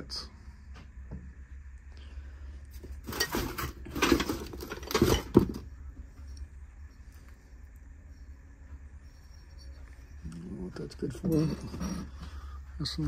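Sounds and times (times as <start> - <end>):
metal trays scraping and clattering: 2.9 - 5.6.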